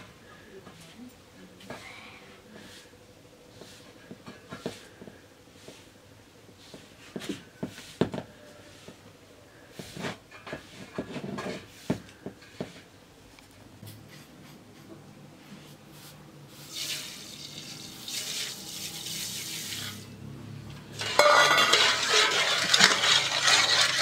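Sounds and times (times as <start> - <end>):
hands rubbing flour: 2.6 - 12.9, 21.6 - 24.0.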